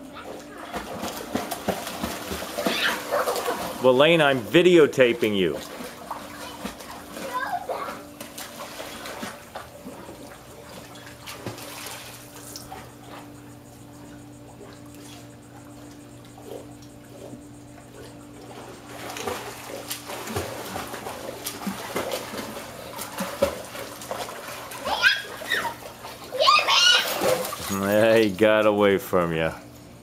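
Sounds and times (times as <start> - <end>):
pool water splashing: 0.0 - 29.5
faint steady hum: 0.0 - 30.0.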